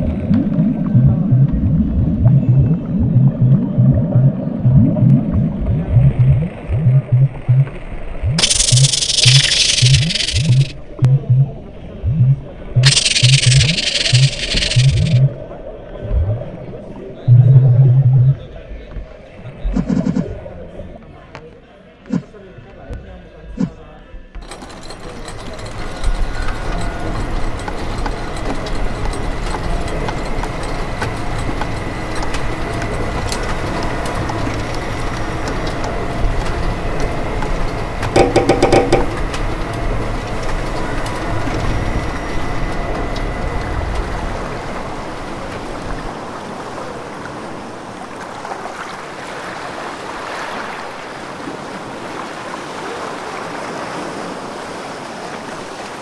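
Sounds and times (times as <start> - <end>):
deep low drone: 0.0 - 18.6
rapid electronic clicks: 8.3 - 11.2, 12.8 - 15.3, 38.0 - 39.4
thin high tone: 8.4 - 10.8, 12.8 - 15.2.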